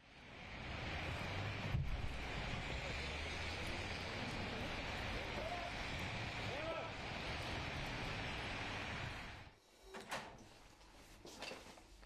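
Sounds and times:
distant traffic: 0.0 - 9.5
wind: 0.0 - 12.0.

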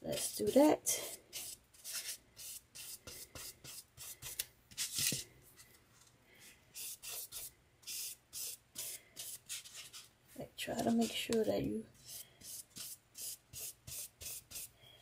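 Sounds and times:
brush rubbing on tissue: 12.0 - 14.7.

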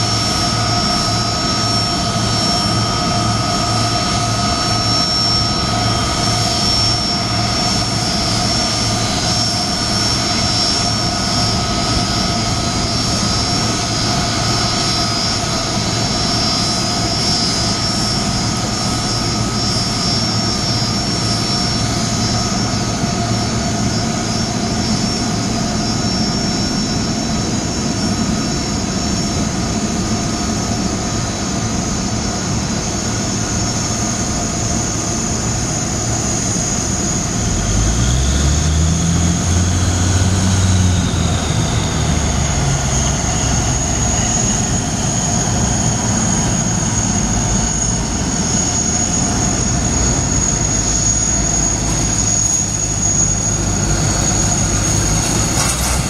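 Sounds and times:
jet engines with high whine: 0.0 - 56.0
ground vehicle engine rumble: 37.4 - 56.0.

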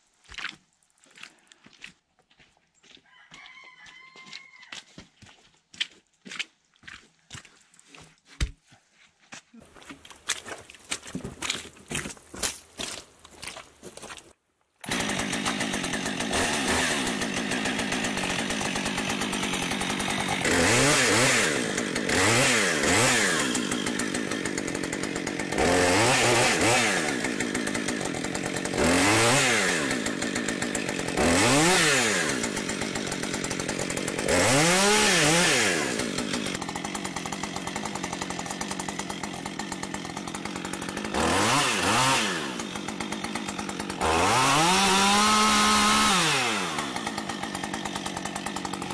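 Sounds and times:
chainsaw idling and revving: 14.8 - 48.9.

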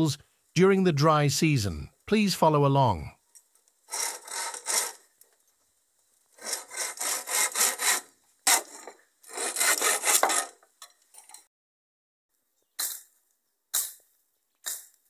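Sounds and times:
hand saw cutting wood: 3.9 - 5.1, 6.3 - 10.7.

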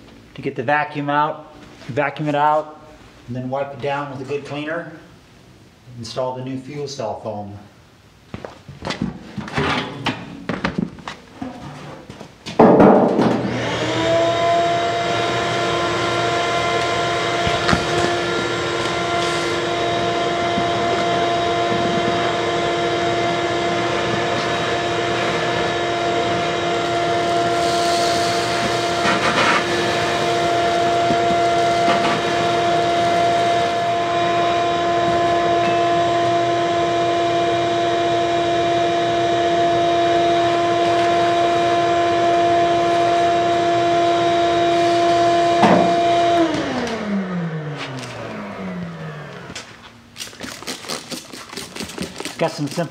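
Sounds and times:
shop vacuum whine: 12.6 - 50.0.

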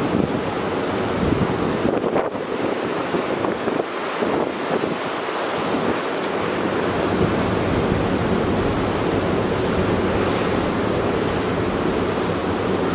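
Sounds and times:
ocean surf breaking: 0.0 - 12.9
wind rumbling on microphone: 0.0 - 12.9.

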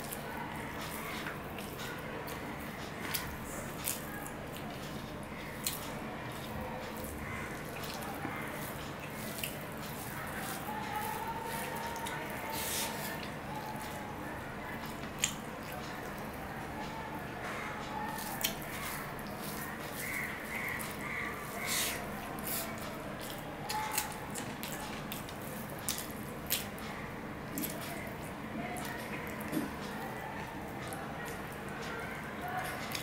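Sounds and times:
wet chewing: 0.0 - 33.0
fingers squishing rice: 2.4 - 14.2, 17.9 - 26.8.

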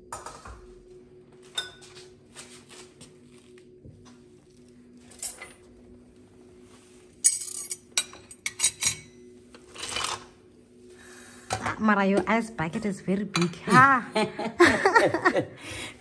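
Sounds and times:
glassware clinking: 7.2 - 9.2.

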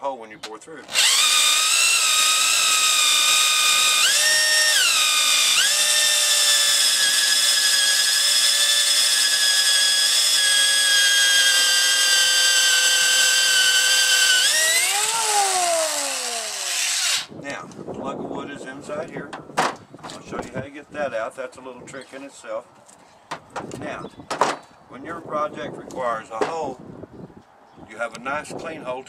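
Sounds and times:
electric drill whining: 0.9 - 17.3.

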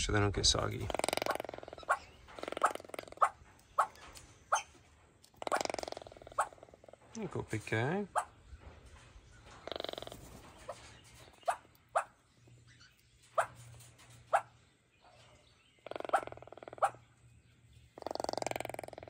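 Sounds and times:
toucan croaking calls: 0.5 - 7.1, 8.1 - 8.4, 9.6 - 13.6, 15.6 - 17.1, 17.9 - 19.0.

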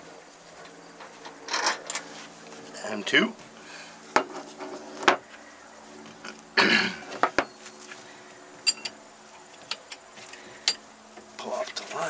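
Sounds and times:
tools clinking against metal: 8.6 - 9.0, 10.6 - 10.8.

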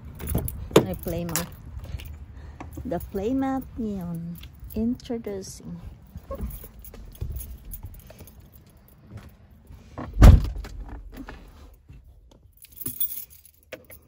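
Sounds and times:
car keys jangling: 0.0 - 5.1, 5.9 - 9.3, 10.4 - 14.0
handling clicks and rustles: 0.0 - 14.0
heavy thump: 10.0 - 11.1.

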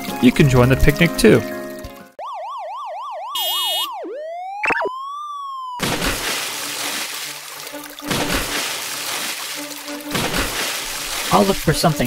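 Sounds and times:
warbling siren tone: 2.2 - 5.8
water splashing: 5.8 - 12.0.

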